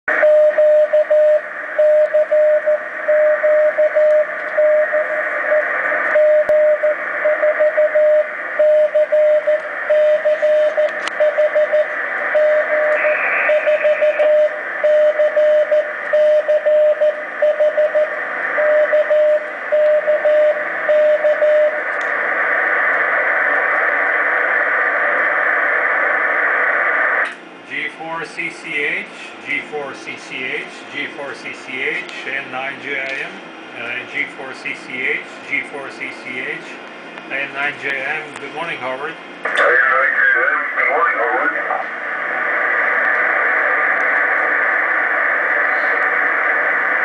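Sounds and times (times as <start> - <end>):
morse code tone: 0.2 - 5.1, 6.2 - 21.8
radio receiver hiss: 9.6 - 14.9, 21.7 - 27.8, 39.4 - 47.0.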